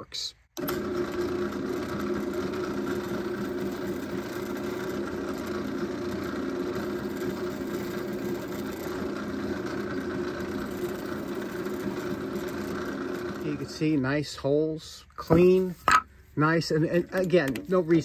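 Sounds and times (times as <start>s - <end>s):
drill boring into wood: 0.6s - 14.0s
drill press motor hum: 0.6s - 14.0s.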